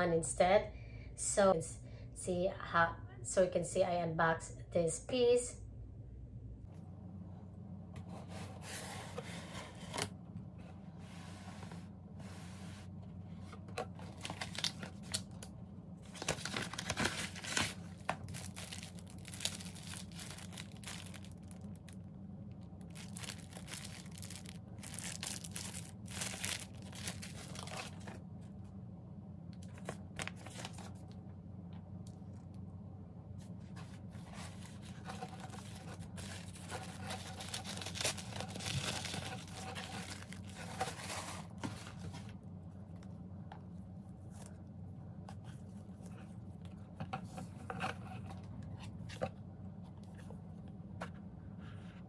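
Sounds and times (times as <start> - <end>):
faint low hum: 0.0 - 52.0
paper and packaging rustling: 13.5 - 15.4, 16.0 - 22.0, 22.8 - 28.2, 29.6 - 31.0, 33.7 - 42.4.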